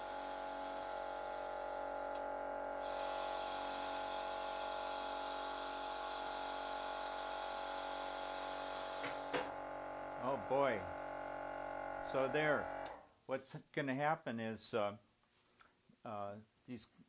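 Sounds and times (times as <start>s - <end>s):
steady electric hum: 0.0s - 5.9s, 8.1s - 13.0s
compressed air hissing: 2.8s - 6.6s.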